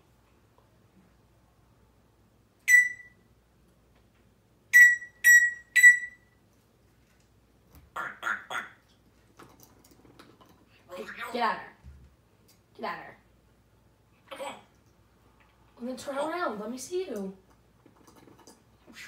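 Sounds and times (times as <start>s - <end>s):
parrot making electronic beeps: 2.7s - 3.2s, 4.8s - 6.3s.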